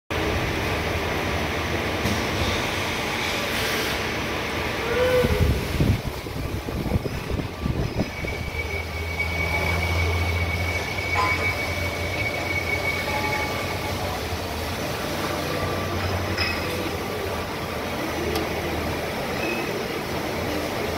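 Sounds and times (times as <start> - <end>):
thin high whine: 6.2 - 17.0.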